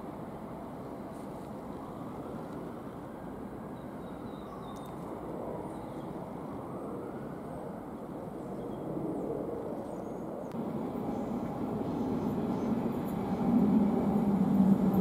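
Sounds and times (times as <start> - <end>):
electric train rumbling: 10.5 - 15.0.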